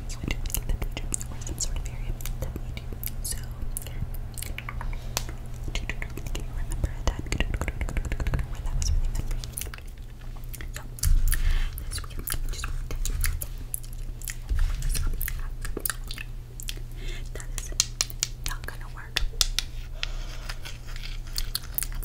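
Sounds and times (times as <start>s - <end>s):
crunchy chewing: 20.0s - 22.0s.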